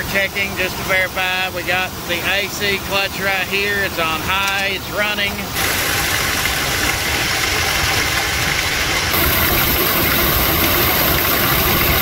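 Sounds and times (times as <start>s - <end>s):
high hiss: 9.1s - 12.0s.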